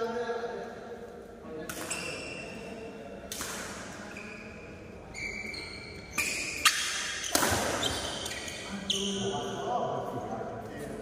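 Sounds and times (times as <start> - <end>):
shoes squeaking on court floor: 1.8 - 2.8, 4.0 - 10.0
racket striking shuttlecock: 3.3 - 4.0, 6.2 - 8.3.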